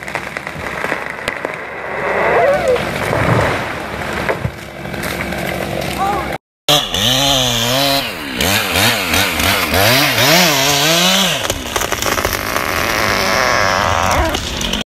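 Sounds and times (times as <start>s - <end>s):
chainsaw cutting wood: 6.7s - 14.8s.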